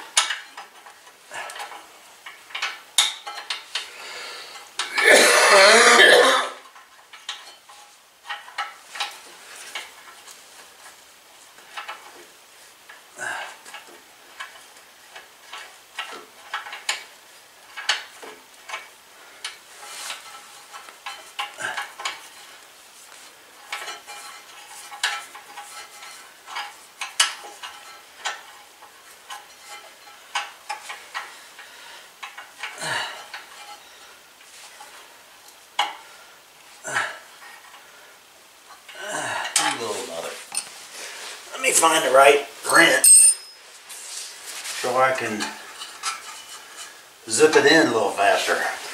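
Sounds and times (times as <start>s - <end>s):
metal tools clinking and scraping: 0.1s - 3.9s, 6.7s - 10.3s, 19.5s - 22.6s, 23.6s - 31.3s, 32.2s - 34.9s, 38.7s - 40.8s, 41.5s - 48.9s.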